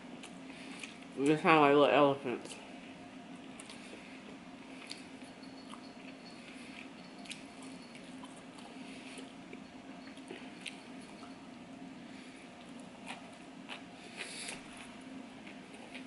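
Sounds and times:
person chewing food: 0:00.1 - 0:01.2, 0:03.4 - 0:11.4, 0:12.5 - 0:16.0.

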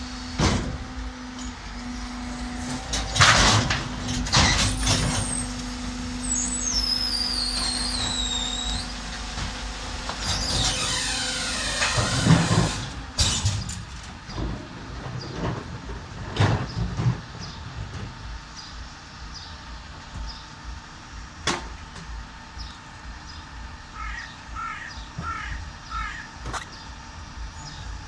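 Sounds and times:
bin lifter whine: 0:00.0 - 0:28.0
garbage truck engine running: 0:00.0 - 0:28.0
wheelie bins banging: 0:00.2 - 0:06.0, 0:07.4 - 0:18.2.

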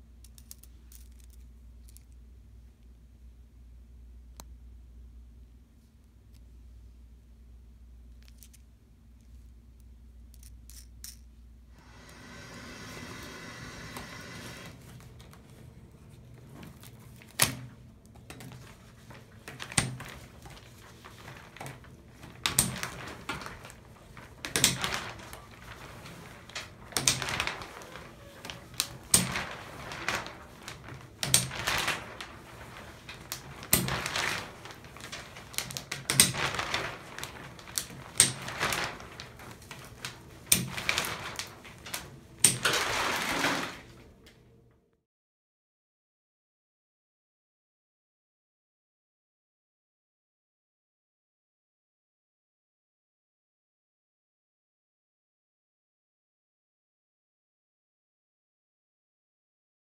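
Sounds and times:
rustle of shower curtain: 0:11.8 - 0:17.8, 0:18.5 - 0:44.2
curtain rings clicking shut: 0:18.3 - 0:44.0.

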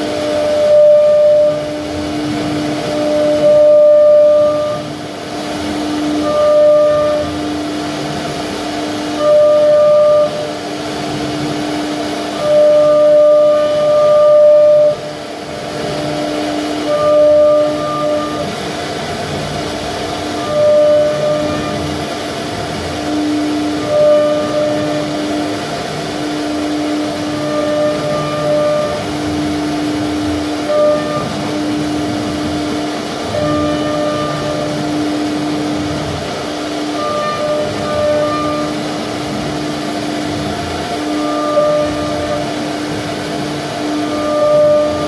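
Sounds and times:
wood router carving: 0:00.0 - 0:45.0.

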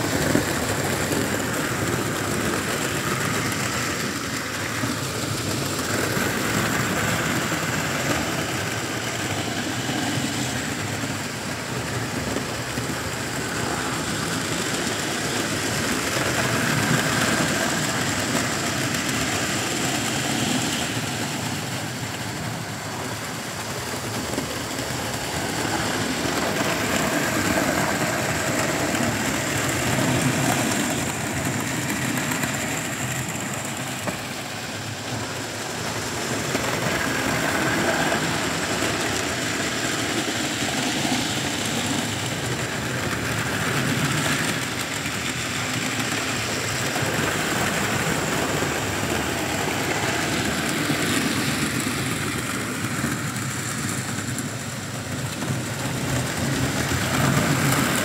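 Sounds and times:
model trains rumbling on rails: 0:00.0 - 0:58.0.

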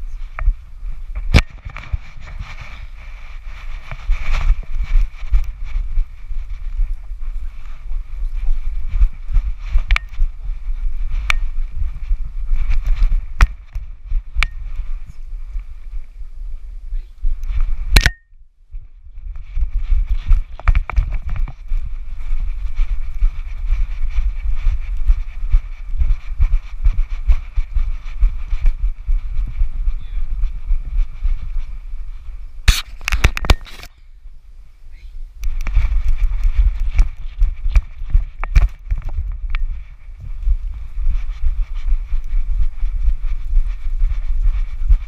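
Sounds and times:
wind buffeting microphone: 0:00.0 - 0:45.0
camera rattling on harness: 0:01.2 - 0:15.1, 0:19.2 - 0:33.9, 0:35.4 - 0:45.0
sharp click: 0:18.0 - 0:18.3, 0:32.7 - 0:33.9
dog paws thudding: 0:18.8 - 0:33.7, 0:35.5 - 0:45.0.

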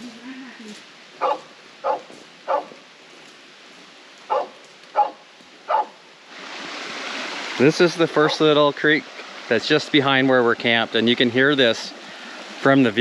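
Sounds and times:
babbling creek: 0:00.0 - 0:13.0
dog barking: 0:01.2 - 0:02.8, 0:04.3 - 0:06.0.

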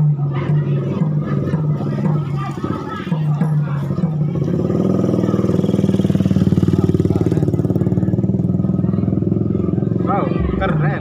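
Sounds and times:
motorcycle engine passing by: 0:04.2 - 0:11.0.

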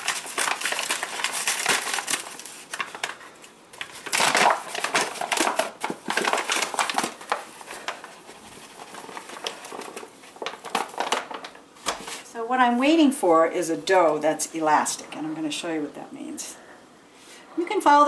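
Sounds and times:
flour bag rustling and crinkling: 0:00.0 - 0:12.3.

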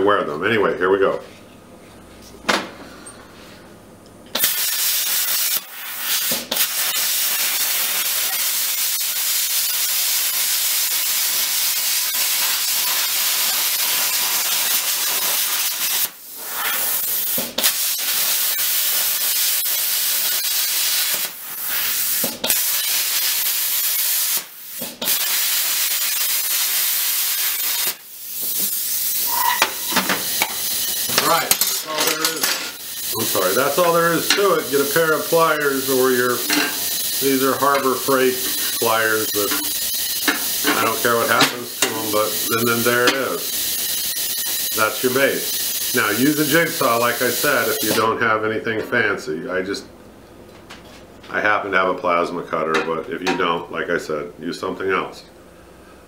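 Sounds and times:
plasma cutter hissing: 0:04.3 - 0:48.1.

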